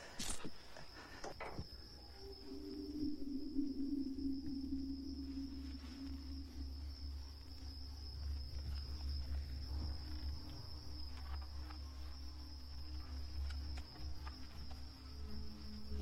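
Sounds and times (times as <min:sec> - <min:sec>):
high insect-like trill: 0:00.0 - 0:16.0
low rumbling drone: 0:01.8 - 0:11.0.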